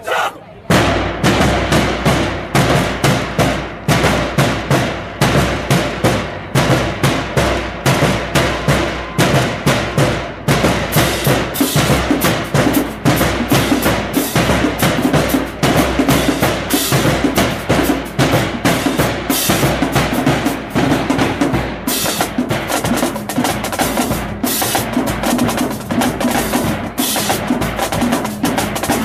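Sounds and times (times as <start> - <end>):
marching drumline playing: 0.0 - 29.0.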